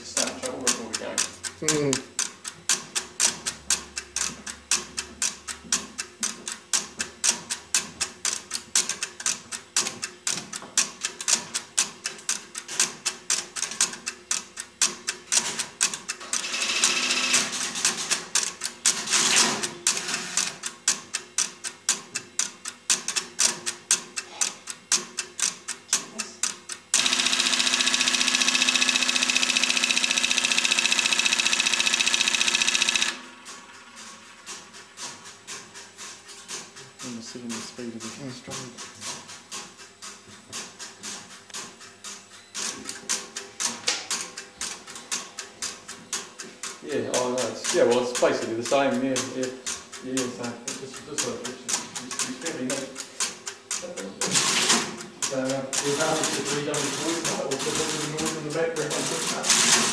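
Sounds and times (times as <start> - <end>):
relays clicking and clattering: 25.8 - 59.9
multi-tone ringing: 27.0 - 33.2.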